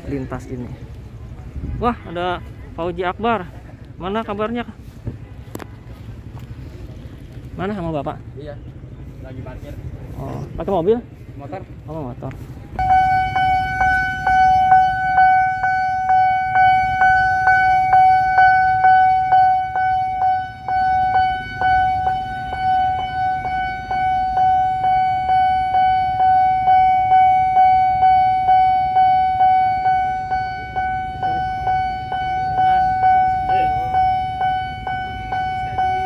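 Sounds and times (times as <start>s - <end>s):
level crossing warning bell: 12.7s - 36.0s.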